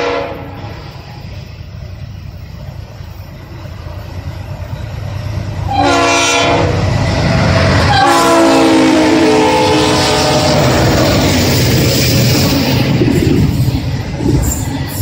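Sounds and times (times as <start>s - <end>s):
train air horn blasts: 0.0s - 0.8s, 5.6s - 6.8s, 7.8s - 11.2s
diesel locomotives rumbling: 0.0s - 15.0s.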